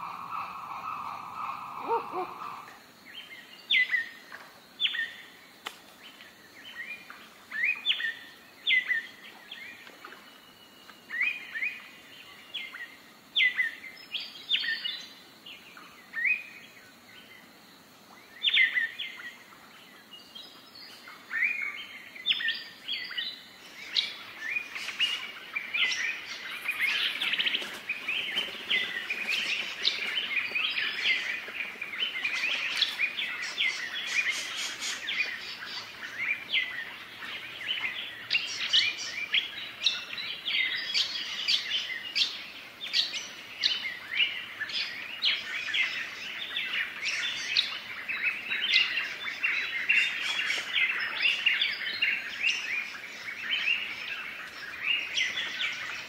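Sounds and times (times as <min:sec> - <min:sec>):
birds chirping: 0:00.0 - 0:04.2, 0:20.2 - 0:56.0.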